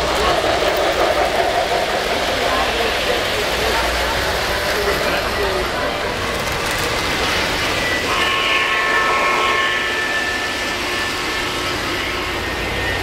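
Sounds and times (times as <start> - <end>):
model trains rolling rumble: 0.0 - 13.0
locomotive whistle chord: 7.9 - 13.0.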